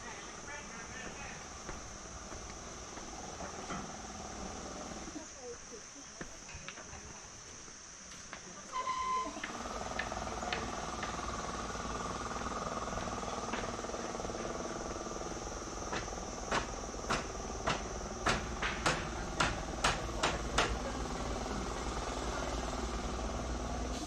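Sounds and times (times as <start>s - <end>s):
high insect drone: 0.0s - 24.0s
footsteps on wooden boards: 1.0s - 3.9s.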